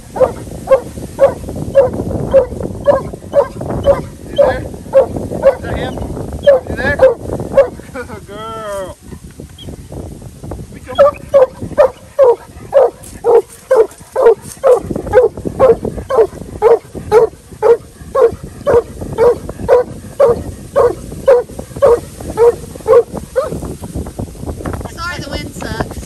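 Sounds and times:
dog barking: 0.1s - 5.7s, 6.4s - 7.8s, 11.0s - 23.6s.

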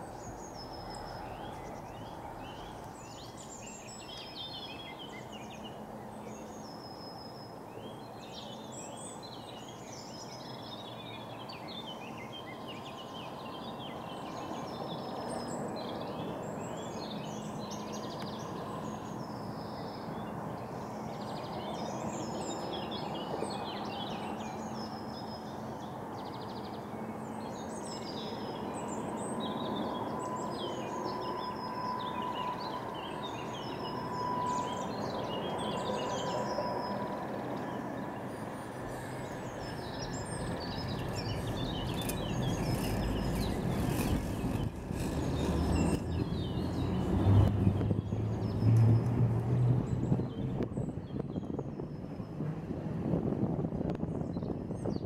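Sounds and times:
songbirds chirping and trilling: 0.0s - 55.0s
funicular car rumbling on track: 34.4s - 54.9s.

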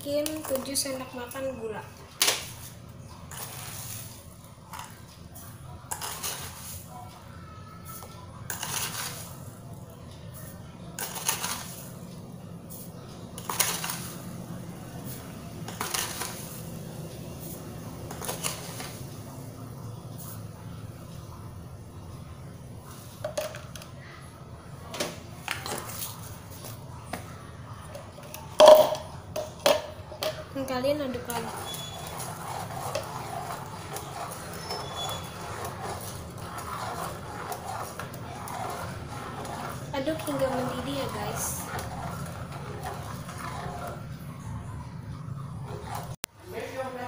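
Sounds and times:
whisk scraping metal saucepan: 2.4s - 5.0s, 5.8s - 6.9s, 7.9s - 9.6s, 10.3s - 12.0s, 12.7s - 19.3s, 27.9s - 46.2s.

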